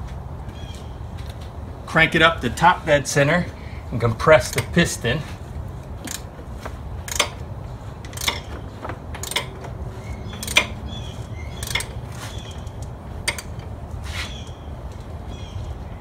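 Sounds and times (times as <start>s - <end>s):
sharp ratchet clicks: 4.4s - 4.9s, 5.8s - 13.8s
wrench turning crankshaft: 4.4s - 5.0s, 5.8s - 15.1s.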